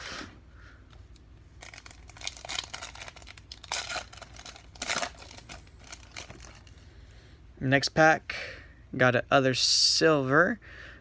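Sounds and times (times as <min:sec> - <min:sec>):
foil wrapper tearing: 0:01.6 - 0:06.7
foil wrapper crinkling: 0:01.6 - 0:06.8.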